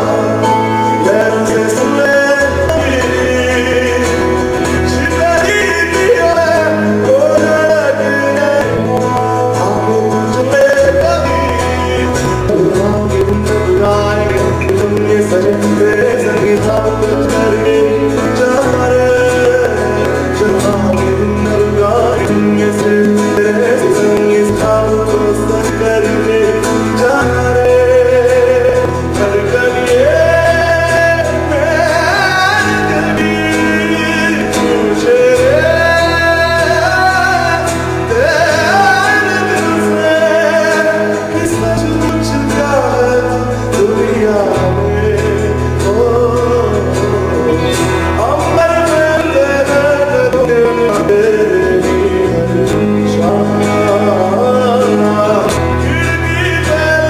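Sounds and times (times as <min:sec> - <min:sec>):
acoustic guitar: 0:00.0 - 0:57.0
drums: 0:00.0 - 0:57.0
low bass notes: 0:00.0 - 0:57.0
man singing: 0:00.0 - 0:57.0.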